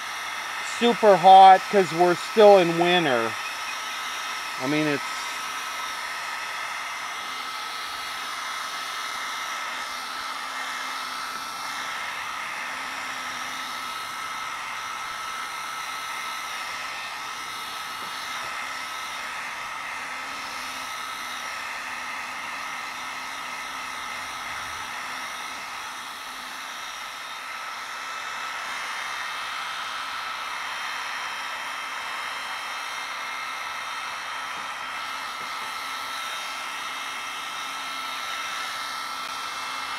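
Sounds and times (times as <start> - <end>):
heat gun blowing air: 0.0 - 39.9.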